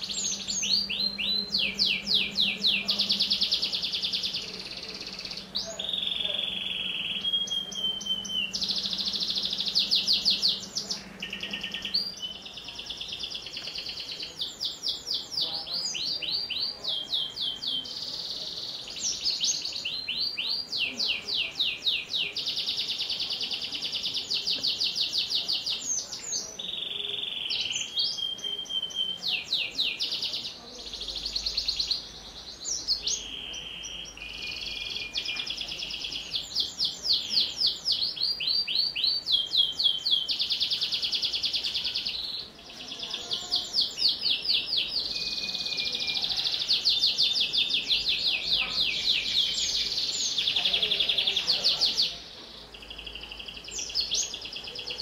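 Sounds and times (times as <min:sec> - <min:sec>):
canary singing trills: 0:00.0 - 0:55.0.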